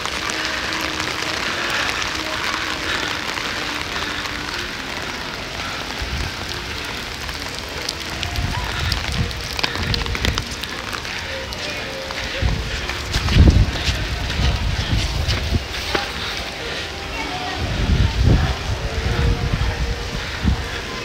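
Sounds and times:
rain falling: 0.0 - 21.0
low rumbling bumps: 12.4 - 16.4.

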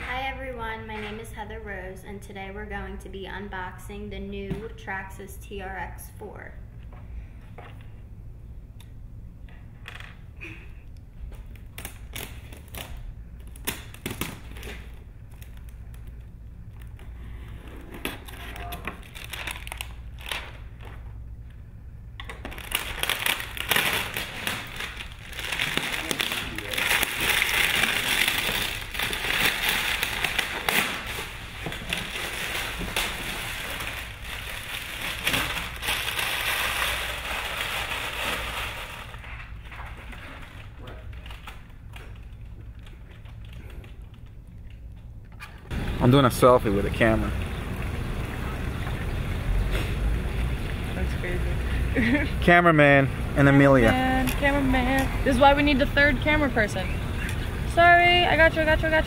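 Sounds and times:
plastic packaging crinkling: 11.5 - 17.2, 18.0 - 21.0, 22.2 - 44.7.

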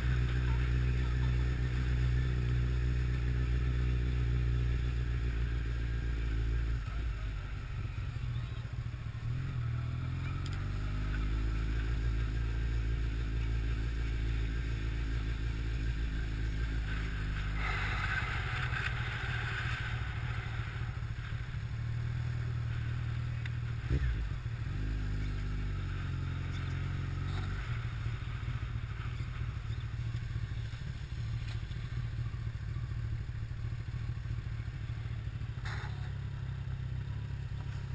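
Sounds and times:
motorcycle engine running: 0.0 - 37.9
hiss: 17.4 - 20.6.

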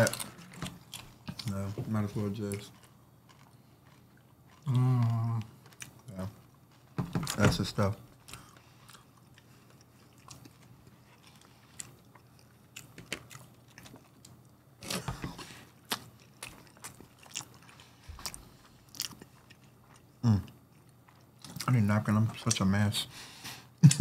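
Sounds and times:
chewing and biting food: 0.0 - 21.7.

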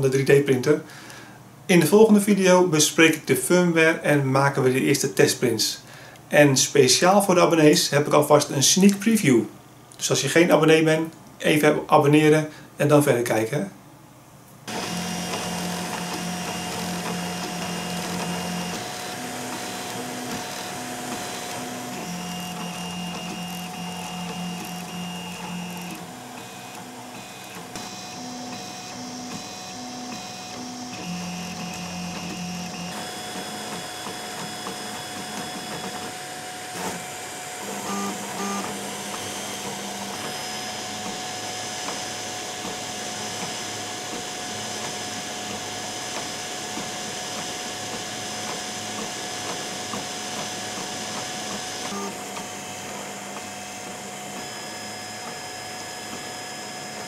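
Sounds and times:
steady hum: 13.7 - 43.5
stepper motors whining: 14.7 - 57.0.

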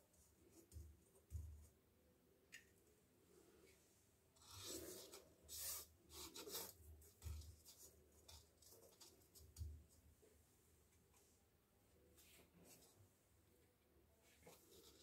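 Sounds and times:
sweet rubbing in powdered sugar: 4.4 - 6.8.

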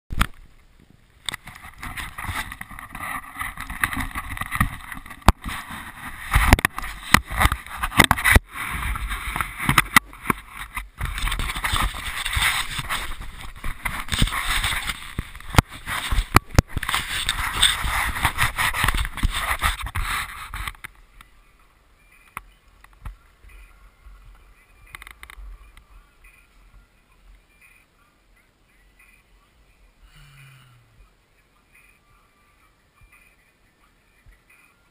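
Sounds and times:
camera rubbing and knocking: 1.3 - 21.1, 22.2 - 26.4.

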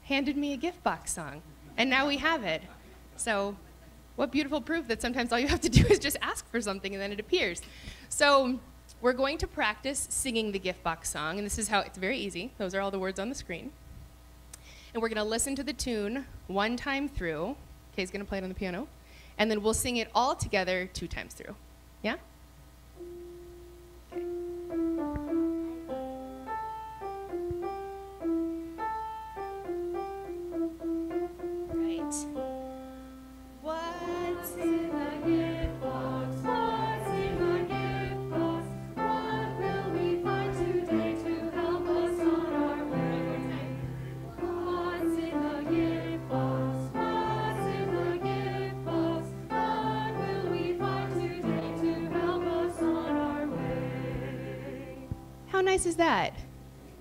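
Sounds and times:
piano melody: 23.0 - 55.5
congregation singing: 33.7 - 55.2.

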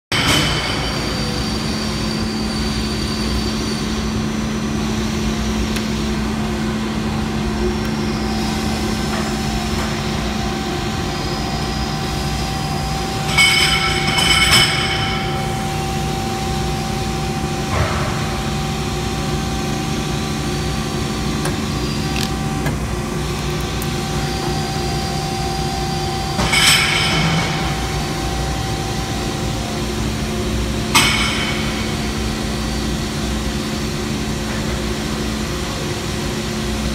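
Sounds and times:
machine running hum: 0.1 - 36.9.

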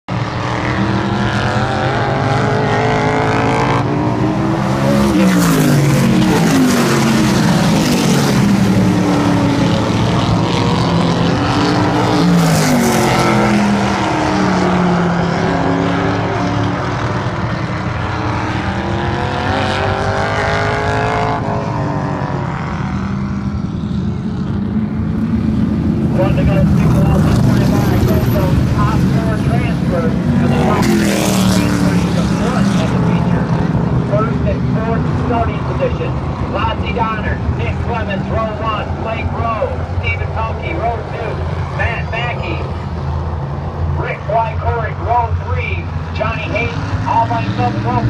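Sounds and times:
race cars passing: 0.1 - 48.0.

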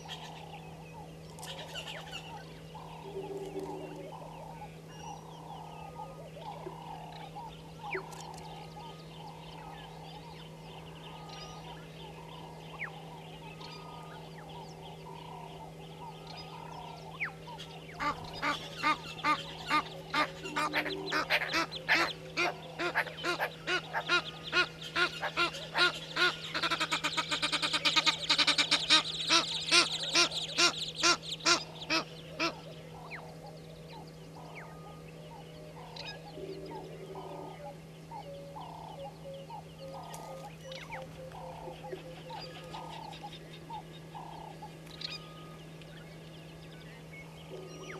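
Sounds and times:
geese honking: 18.0 - 33.2.

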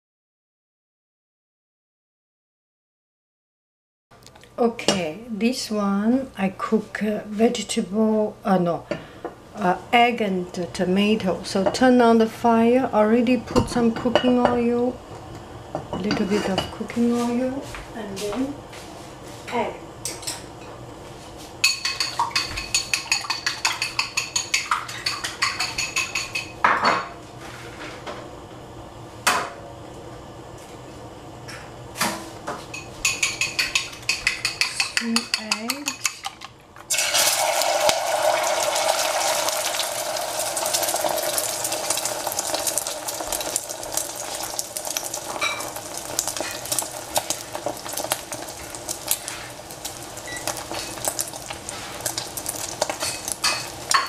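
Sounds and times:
egg sizzling in hot oil: 21.6 - 26.6, 36.9 - 54.0.

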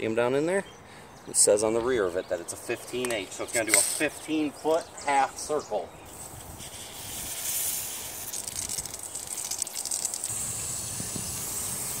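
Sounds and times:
sprinkler water hissing: 6.0 - 12.0
fine water spattering: 7.2 - 10.3.

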